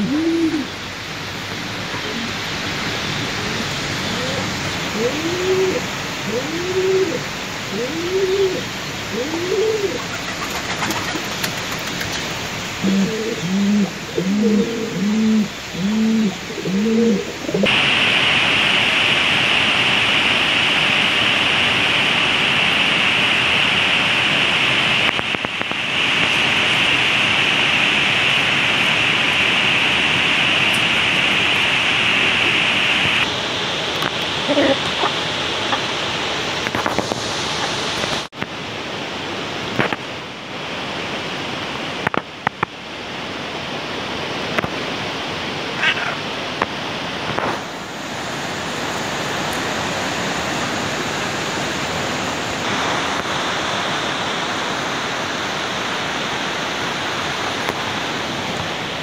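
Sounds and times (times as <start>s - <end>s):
pigeons cooing: 0.0s - 0.8s, 1.8s - 17.7s, 34.4s - 36.0s
loud steady hiss: 0.0s - 59.0s.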